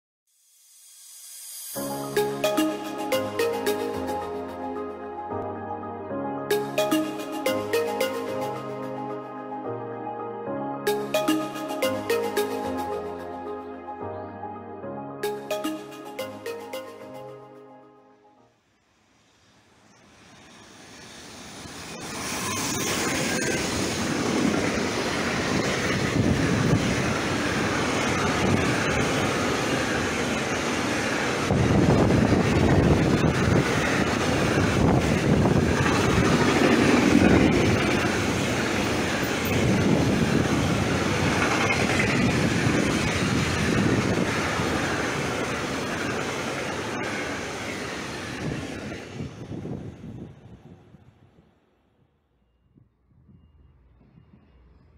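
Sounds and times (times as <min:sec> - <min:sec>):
freight train rumbling past: 0:19.4 - 0:51.4.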